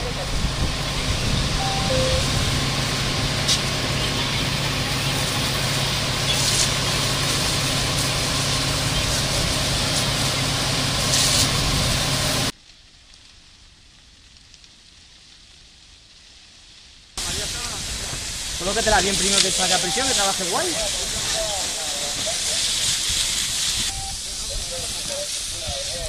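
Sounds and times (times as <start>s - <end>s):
hose jet rushing: 0.0s - 12.5s, 17.2s - 26.0s
pump engine humming: 0.0s - 12.5s, 17.2s - 25.8s
faint steady hiss: 12.6s - 26.0s.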